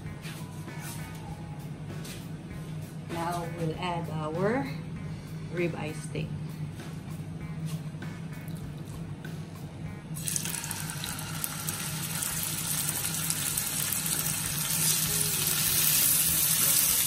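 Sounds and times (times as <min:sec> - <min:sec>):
steaks sizzling in a frying pan: 0:10.2 - 0:17.0.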